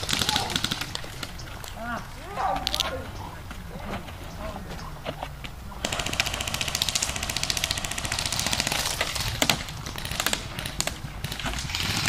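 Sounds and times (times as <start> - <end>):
airsoft guns firing: 0.0 - 1.4, 5.8 - 12.0.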